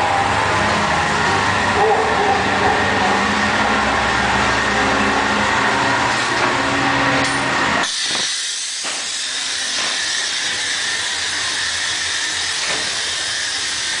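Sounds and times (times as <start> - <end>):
loud low hum: 0.0 - 9.7
fairground noise: 0.0 - 14.0.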